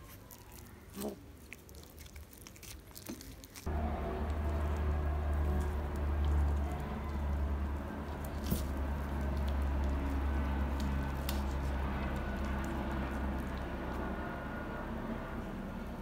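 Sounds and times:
kitten chewing corn cob: 0:00.0 - 0:15.7
low rumble: 0:03.7 - 0:16.0.

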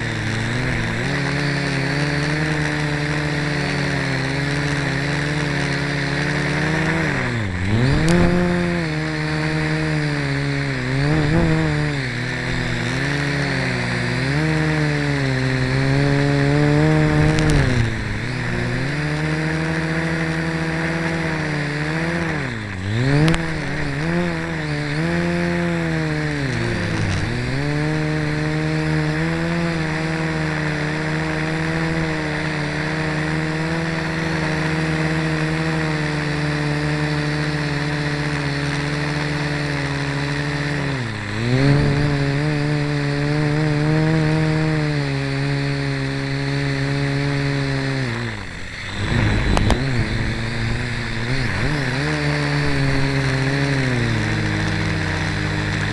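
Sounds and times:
quadcopter motors buzzing: 0:00.0 - 0:55.9.

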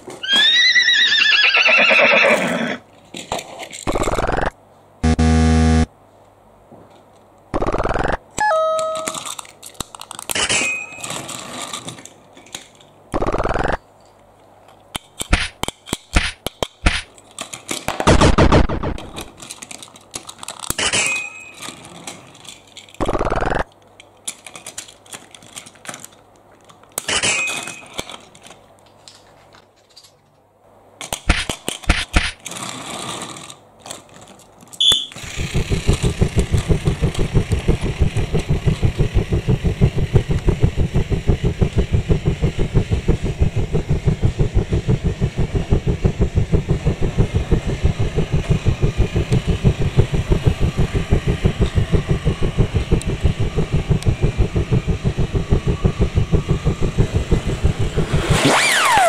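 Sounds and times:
toy train set plastic clatter: 0:03.0 - 0:04.0, 0:08.8 - 0:13.0, 0:14.0 - 0:18.1, 0:19.0 - 0:30.4, 0:31.0 - 0:36.7
toy train running rattle: 0:19.3 - 0:23.0, 0:31.2 - 0:40.1.

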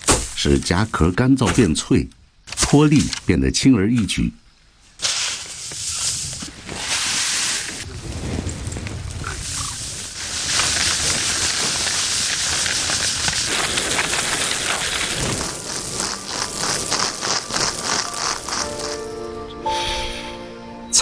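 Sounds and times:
seeds pattering through sieve: 0:05.0 - 0:19.3
sieve shaking swish: 0:10.3 - 0:19.1.

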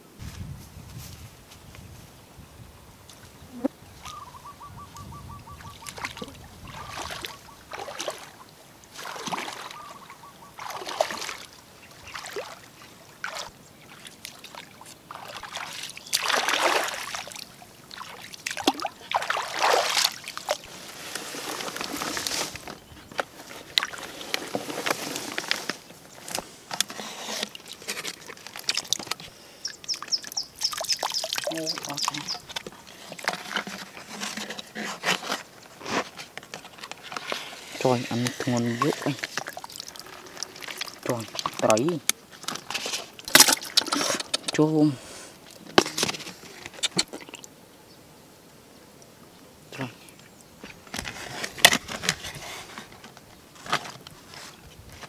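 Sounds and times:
muddy water splashing: 0:05.2 - 0:47.5.

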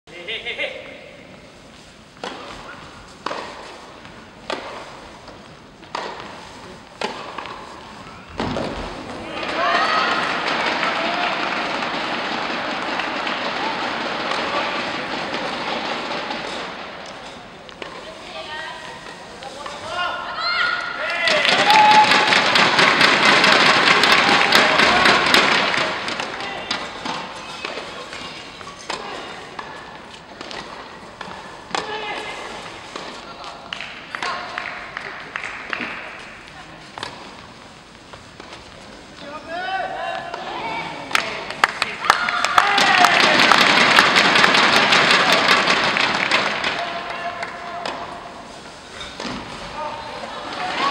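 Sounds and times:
tennis balls tapping: 0:02.2 - 0:08.8
tennis ball hit by rackets: 0:02.2 - 0:18.0, 0:22.0 - 0:33.2
applause: 0:10.5 - 0:13.7, 0:21.3 - 0:26.0, 0:33.7 - 0:36.1, 0:41.1 - 0:46.8.

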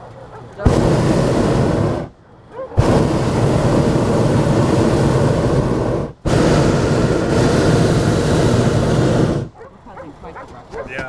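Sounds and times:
propane burner blast: 0:00.6 - 0:02.2, 0:02.8 - 0:09.6.

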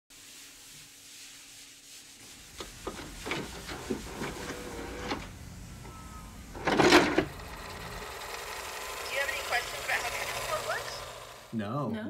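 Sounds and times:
chalk rubbing on chalkboard: 0:00.1 - 0:04.9.

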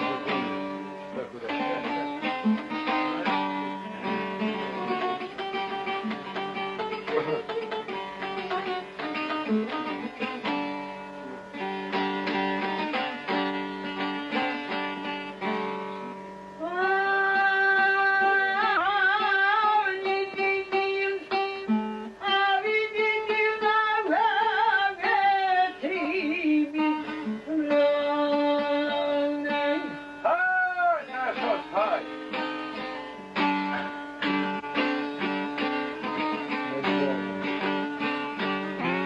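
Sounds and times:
man singing with vibrato: 0:00.0 - 0:01.2, 0:16.1 - 0:34.7
plucked string instrument melody: 0:00.0 - 0:39.0.

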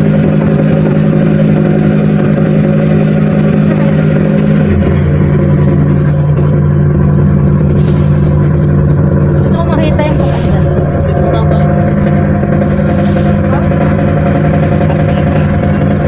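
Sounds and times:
ferry engines droning: 0:00.0 - 0:16.0
rushing noise: 0:00.0 - 0:16.0.

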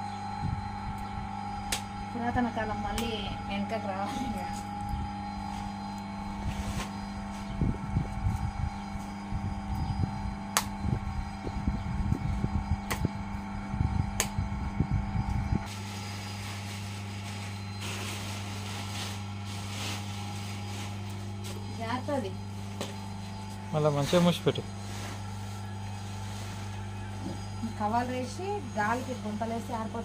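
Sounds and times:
steady electric hum: 0:00.0 - 0:30.0
wet clay slapped onto wheel: 0:14.2 - 0:14.4
plastic cover rustling: 0:15.7 - 0:22.0.

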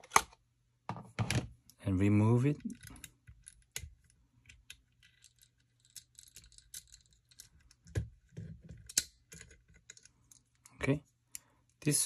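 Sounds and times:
small metal clicks: 0:02.7 - 0:07.8.

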